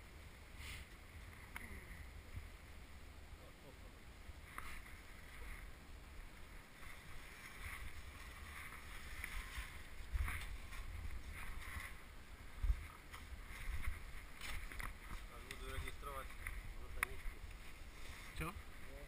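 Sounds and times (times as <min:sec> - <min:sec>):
footsteps crunching snow: 0:06.6 - 0:19.0
wind buffeting microphone: 0:07.0 - 0:19.0.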